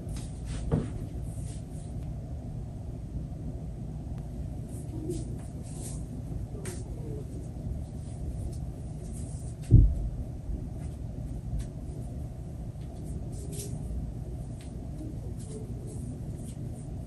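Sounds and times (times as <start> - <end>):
low background rumble: 0.0 - 17.0
dull thump: 9.6 - 10.2.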